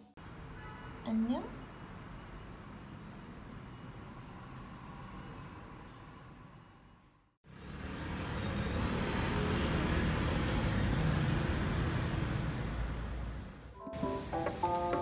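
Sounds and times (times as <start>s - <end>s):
road traffic rumble: 7.5s - 15.0s.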